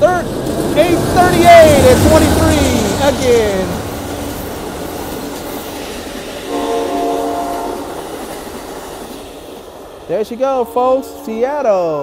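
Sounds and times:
train wheels rumbling on rails: 0.0s - 12.0s
train horn chord: 6.5s - 7.9s, 10.5s - 11.5s.

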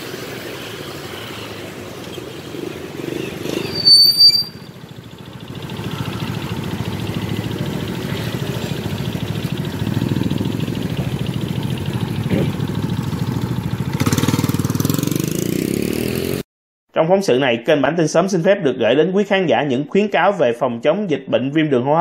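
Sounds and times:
motorbike traffic passing: 0.0s - 16.4s
motorbike engine pulsing: 2.8s - 16.4s
shrill high-pitched tones: 3.6s - 4.7s.

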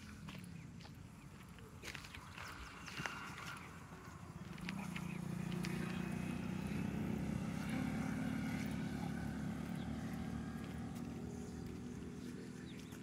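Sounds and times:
distant engine droning: 0.0s - 13.0s.

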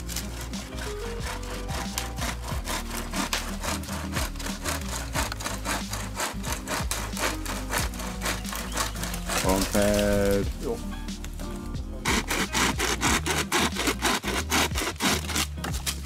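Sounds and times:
hand saw cutting wood: 0.0s - 10.8s, 12.0s - 16.0s
faint background music: 0.0s - 16.0s.

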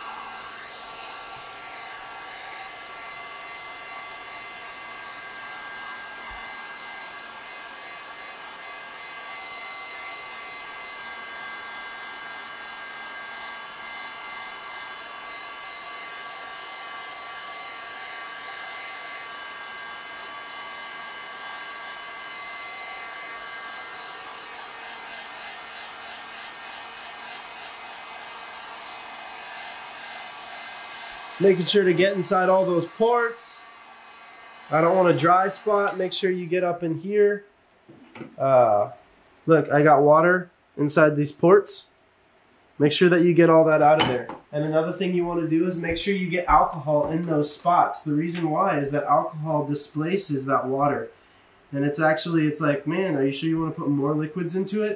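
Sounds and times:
heat gun blowing hot air: 0.0s - 36.4s.

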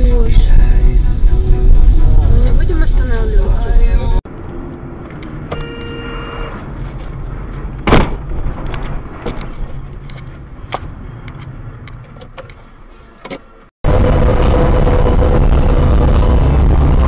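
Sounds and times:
car engine and road rumble: 0.0s - 17.0s
short electronic tone: 5.5s - 6.6s.

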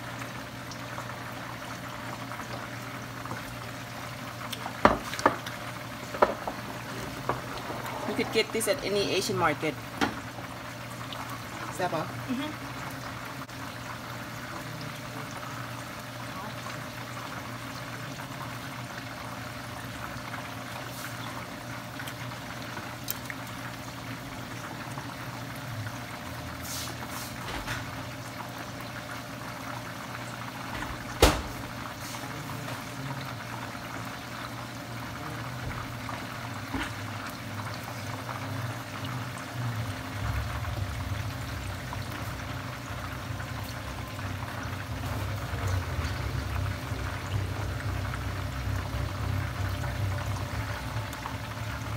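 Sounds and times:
chicken deep-frying in oil: 0.0s - 51.9s
low hum: 38.5s - 51.9s.

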